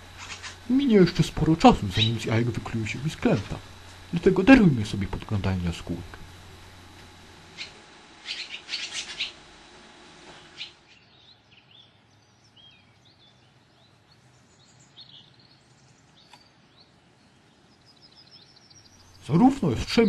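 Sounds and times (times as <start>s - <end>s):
swallow chirping: 0.1s - 2.3s, 7.5s - 9.4s, 10.5s - 11.8s
faint bird chirps and whistles: 7.6s - 9.4s.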